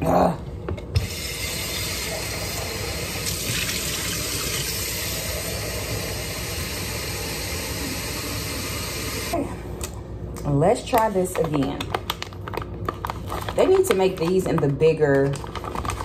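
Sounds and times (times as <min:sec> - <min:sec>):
faucet water running into sink: 0:01.0 - 0:09.3.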